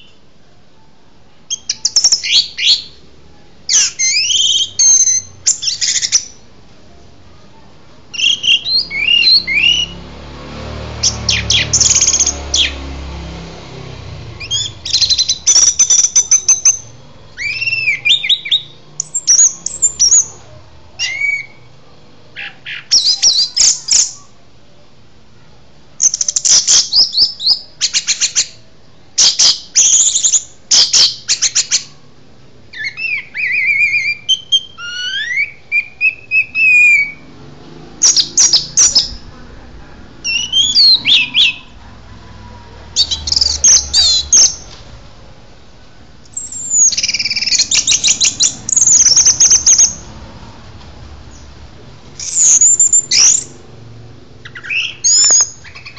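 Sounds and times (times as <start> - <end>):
songbird singing trills: 1.5 - 3.1, 3.7 - 6.5, 8.1 - 10.1, 11.0 - 13.0, 14.3 - 21.8, 22.4 - 24.3, 29.2 - 32.0, 32.7 - 37.3, 38.0 - 39.3, 40.2 - 41.8, 42.9 - 44.8, 46.3 - 50.1, 52.2 - 53.6, 54.4 - 55.9.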